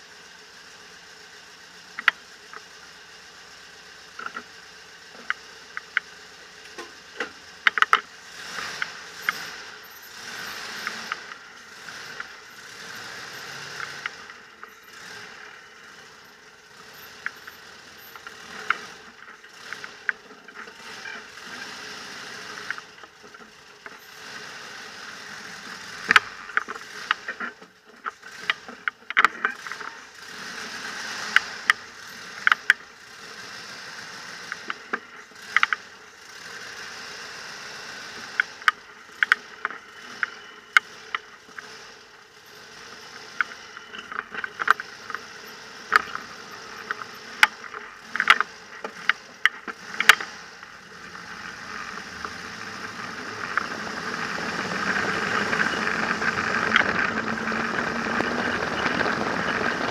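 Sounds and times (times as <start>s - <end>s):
faint engine: 0.0s - 59.9s
rattling clicks and knocks: 6.7s - 21.2s, 26.0s - 29.9s, 38.2s - 59.9s.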